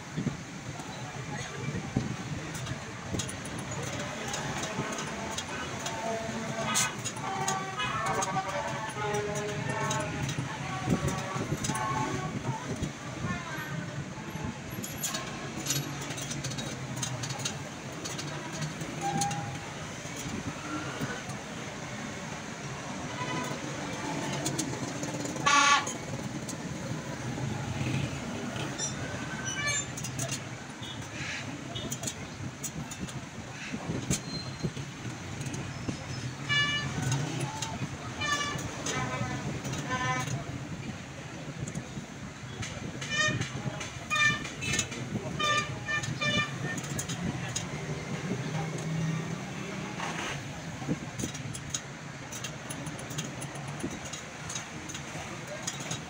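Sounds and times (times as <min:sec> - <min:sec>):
passing motor vehicles hum: 0:00.0 - 0:56.0
street traffic: 0:00.0 - 0:56.0
vehicle horn honk: 0:25.4 - 0:26.0.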